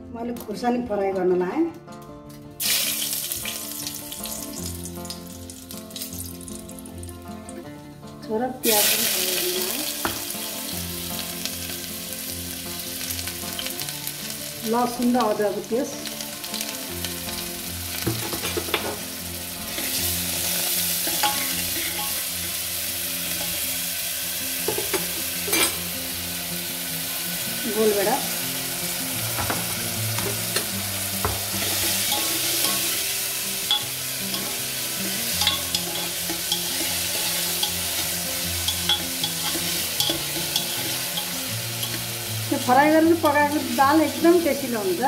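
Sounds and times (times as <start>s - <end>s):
food sizzling in hot oil: 2.6s - 7.6s, 8.6s - 45.0s
spoon scraping pan: 21.0s - 22.2s, 35.4s - 42.1s.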